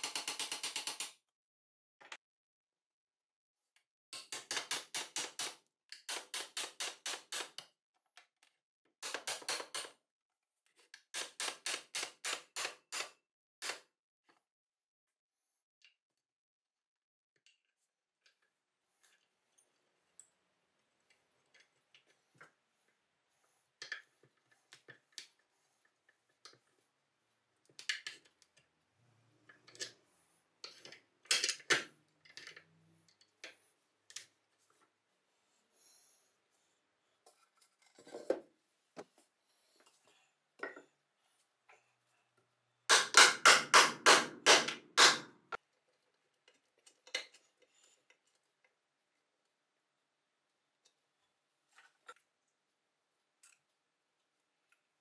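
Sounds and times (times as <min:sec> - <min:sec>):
metal parts clicking and knocking: 0:00.0 - 0:01.2, 0:30.6 - 0:33.5.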